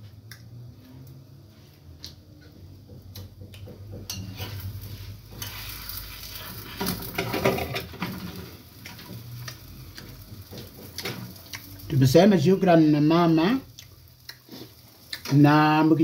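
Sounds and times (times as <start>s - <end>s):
food sizzling in a pan: 3.6s - 16.0s
plate and frying pan clattering: 6.7s - 8.4s.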